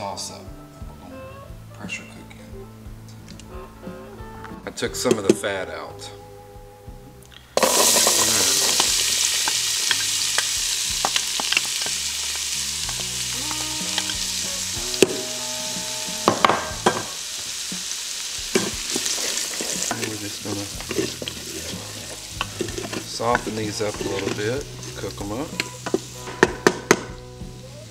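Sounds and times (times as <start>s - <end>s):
vegetables sizzling in hot fat: 7.6s - 27.9s.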